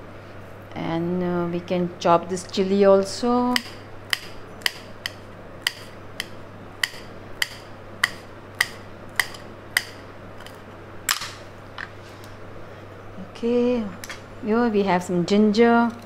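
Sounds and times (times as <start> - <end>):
knife clicking on glass board: 3.6 - 10.0.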